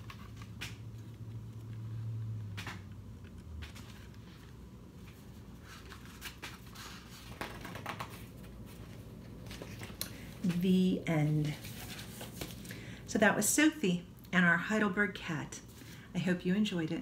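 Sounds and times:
book being handled: 0.0s - 12.8s.

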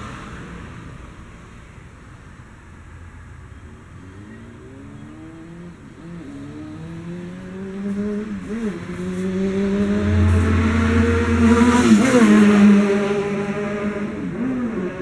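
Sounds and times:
vehicle engine revving: 4.0s - 15.0s.

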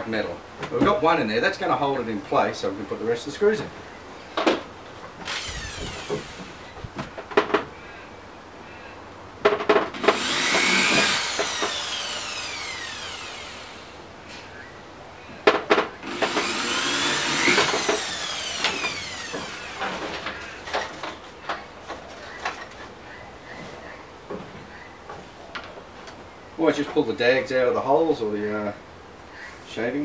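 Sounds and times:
electric drill boring plastic: 5.2s - 6.7s, 10.0s - 14.0s, 16.0s - 20.4s.

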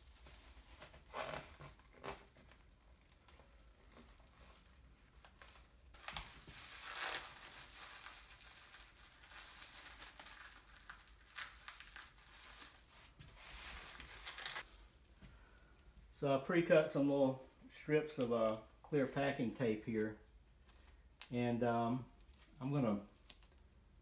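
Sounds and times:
plastic film crinkling: 0.0s - 14.8s, 22.1s - 23.8s.

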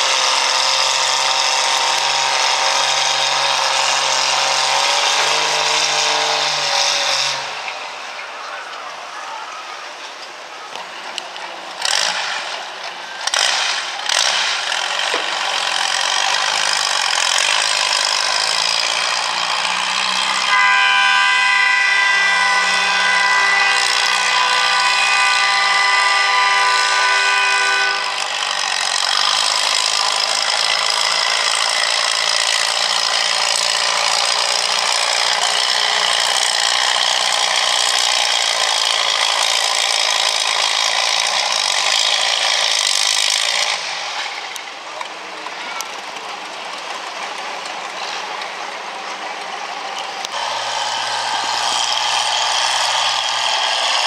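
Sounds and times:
tractor engines running hard: 0.0s - 54.0s.

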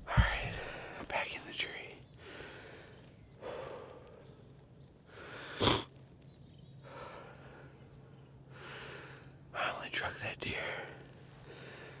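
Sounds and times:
man breathing hard: 2.2s - 4.4s, 5.1s - 5.8s, 6.8s - 7.8s, 8.5s - 9.4s, 11.4s - 12.0s.

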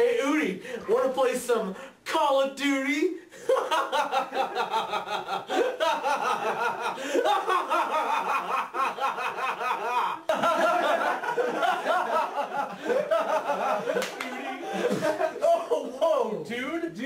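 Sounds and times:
people laughing: 3.4s - 16.3s.

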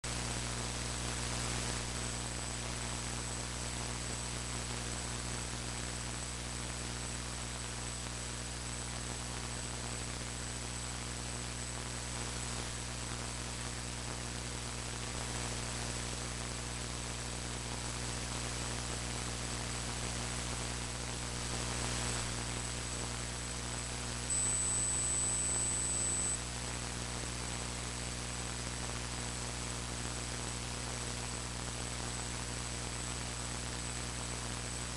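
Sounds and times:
electrical mains hum: 0.1s - 34.9s
thin high whine: 23.8s - 26.6s.

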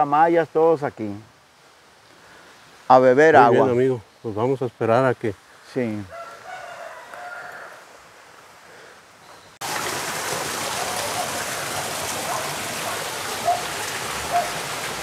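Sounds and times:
rushing water: 7.2s - 15.0s.

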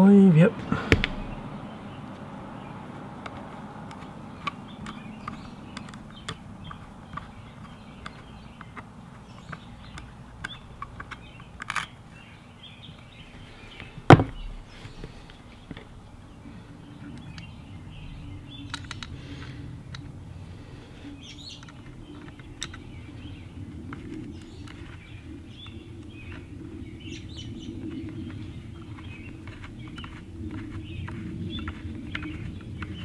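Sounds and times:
faint steady hum: 0.0s - 33.0s
sharp knock: 0.8s - 1.4s.

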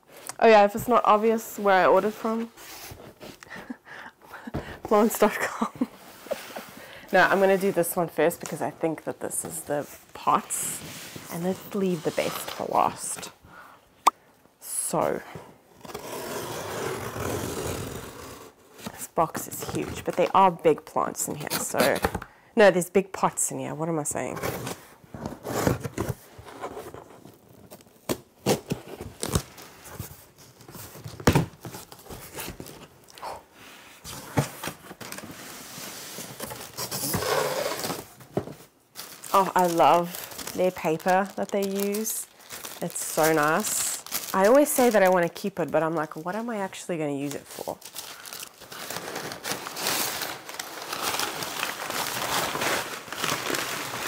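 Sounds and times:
packing paper rustling: 34.2s - 45.9s, 46.7s - 54.0s.

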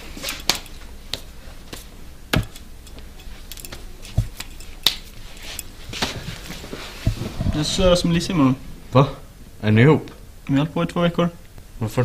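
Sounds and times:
heavy thumps: 2.3s - 4.6s, 5.8s - 9.5s.

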